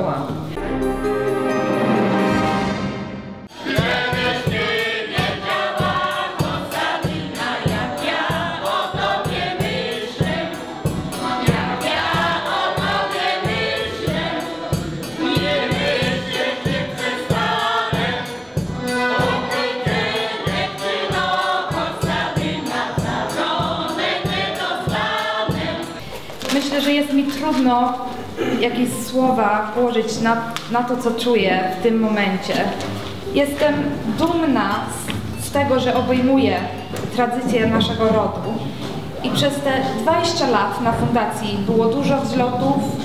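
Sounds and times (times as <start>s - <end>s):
mixed choir singing: 0.8s - 26.1s, 36.6s - 43.0s.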